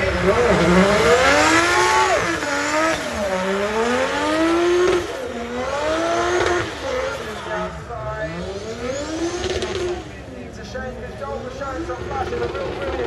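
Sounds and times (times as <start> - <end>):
car engine revving hard: 0.0 - 10.2.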